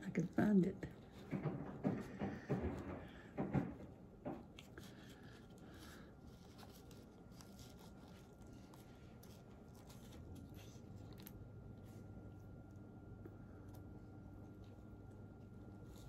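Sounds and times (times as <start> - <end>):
hands rustling a paper card: 4.5 - 16.0.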